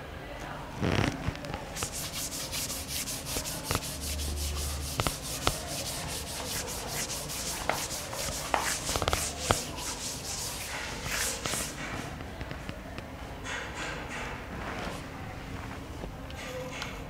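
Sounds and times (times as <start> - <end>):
eraser rubbing on blackboard: 1.8 - 12.0.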